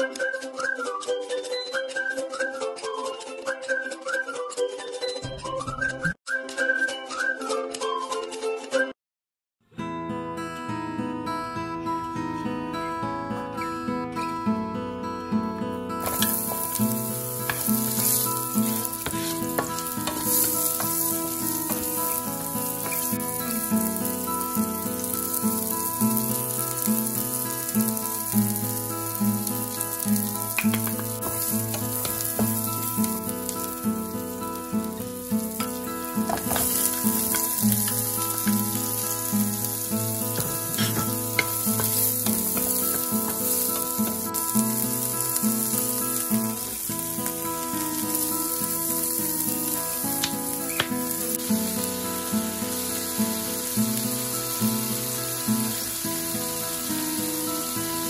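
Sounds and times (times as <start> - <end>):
background music: 0.0 - 9.0, 9.9 - 53.7
onion sizzling in hot oil: 15.9 - 58.0
wooden spatula stirring in wok: 16.1 - 24.3.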